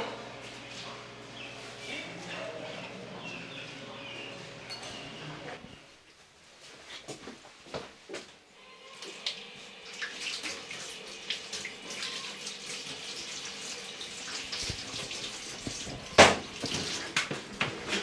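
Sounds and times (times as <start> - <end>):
dishes clinking: 4.0 - 5.6
dishes clattering: 4.6 - 5.6
tap water running into sink: 9.1 - 18.0.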